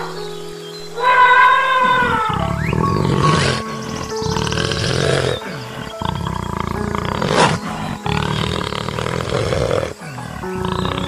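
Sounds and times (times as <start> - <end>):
background music: 0.0 - 11.0
big cat growling: 2.2 - 11.0.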